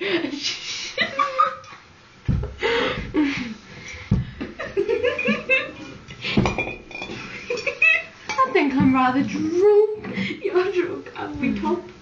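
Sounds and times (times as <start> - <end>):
young women laughing: 0.0 - 3.7, 4.4 - 6.0, 7.2 - 8.2
dull bumps: 2.3 - 5.6.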